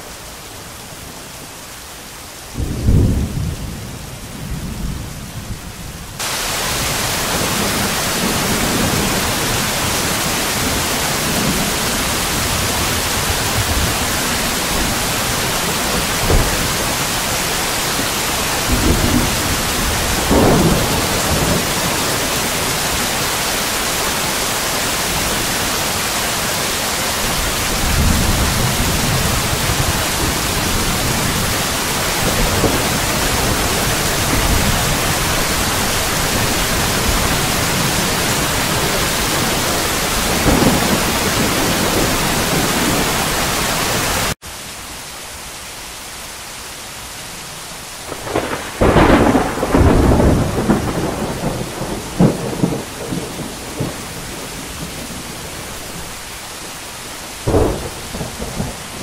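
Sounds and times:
rain hissing: 0:00.0 - 0:59.0
thunder rumbling: 0:02.6 - 0:23.4, 0:27.1 - 0:43.7, 0:48.1 - 0:56.1, 0:57.4 - 0:59.0.

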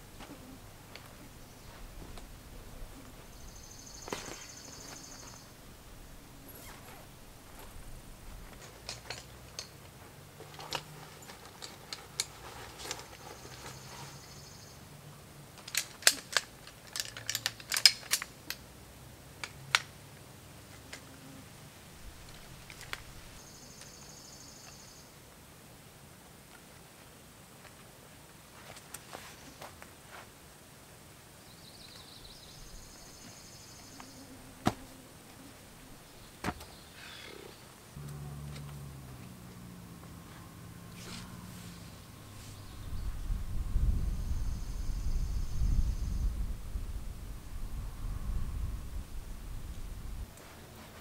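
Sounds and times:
camp chair being assembled: 0:04.0 - 0:05.4, 0:06.5 - 0:14.2, 0:15.5 - 0:18.7, 0:22.1 - 0:23.4, 0:26.5 - 0:30.4, 0:33.9 - 0:37.5, 0:40.3 - 0:42.6
ratchet strap clicks: 0:15.6 - 0:18.6.

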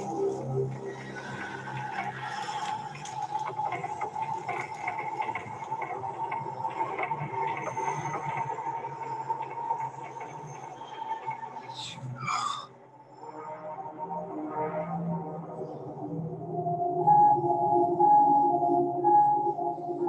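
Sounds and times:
horror film drone with high tone: 0:00.0 - 0:20.0
faint crackles and clicks: 0:00.7 - 0:11.6.

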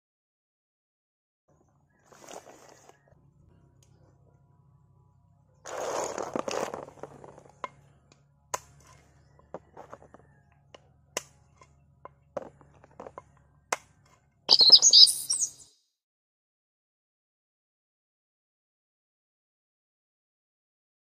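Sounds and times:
bird chirping: 0:14.5 - 0:15.7.

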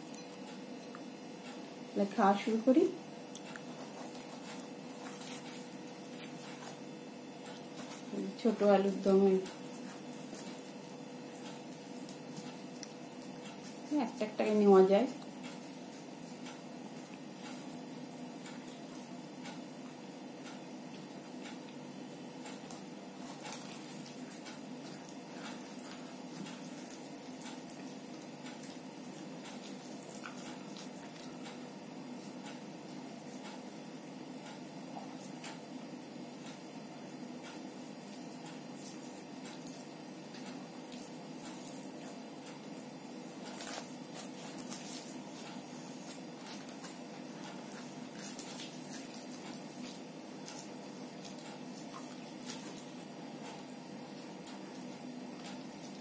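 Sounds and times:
steady background hum: 0:00.0 - 0:56.0
food being torn and squished by hand: 0:03.3 - 0:08.1, 0:22.4 - 0:31.6, 0:43.3 - 0:53.7
chewing and mouth smacks: 0:09.4 - 0:13.9, 0:22.4 - 0:31.6, 0:43.4 - 0:53.7.

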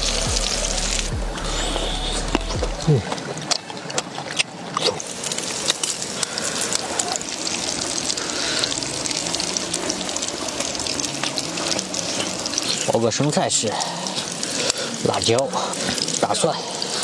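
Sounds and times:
meat sizzling on a griddle: 0:05.0 - 0:17.0.

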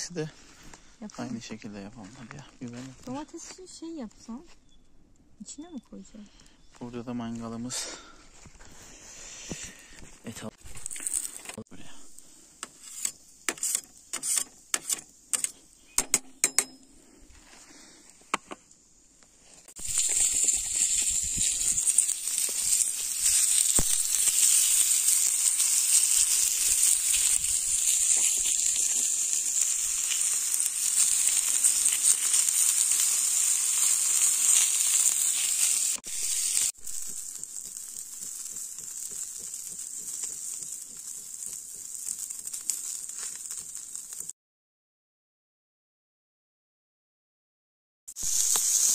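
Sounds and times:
meat sizzling on a grill: 0:10.5 - 0:15.3, 0:19.6 - 0:44.3, 0:48.1 - 0:48.9.

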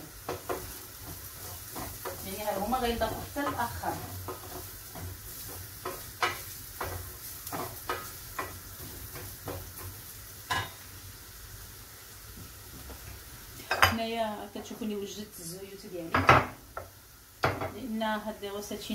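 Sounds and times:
vegetables sizzling in a frying pan: 0:00.0 - 0:18.9
wooden spatula scraping a pan: 0:00.1 - 0:10.1.

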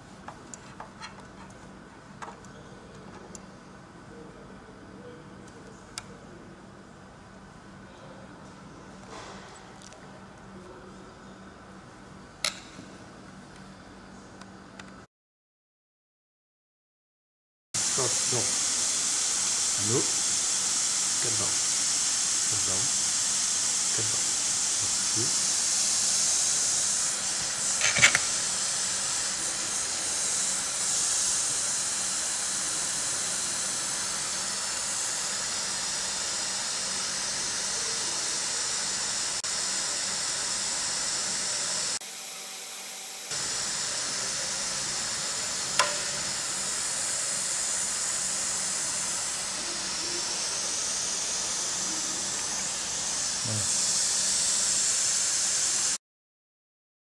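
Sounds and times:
sharp click: 0:12.4 - 0:12.8, 0:45.8 - 0:46.1
pressurised gas hissing: 0:17.8 - 0:42.0, 0:43.2 - 0:56.0.

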